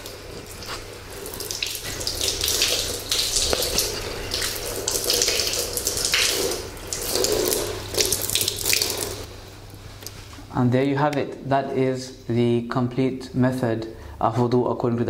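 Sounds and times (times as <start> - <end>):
hands rinsed under water: 0.0 - 9.3
splashing while washing a foot: 0.0 - 9.3
water running from a tap: 0.0 - 9.3.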